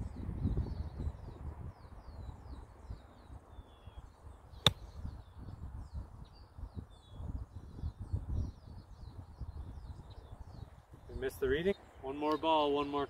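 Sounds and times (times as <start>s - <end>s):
birds chirping: 0.6s - 13.0s
golf club striking ball: 4.6s - 4.9s.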